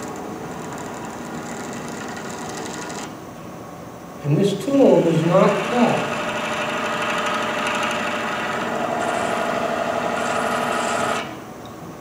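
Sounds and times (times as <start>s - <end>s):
texturing tool buzzing on wood: 5.3s - 11.3s.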